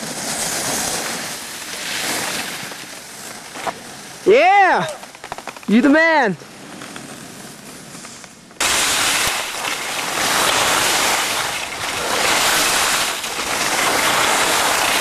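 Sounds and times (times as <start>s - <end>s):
skis hissing on snow: 0.0s - 3.4s, 7.0s - 15.0s.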